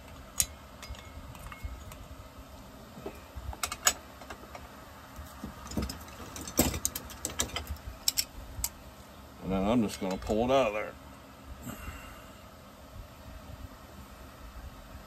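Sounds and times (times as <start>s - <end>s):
low steady hum: 0.0s - 15.0s
metal tools clinking: 0.4s - 2.0s.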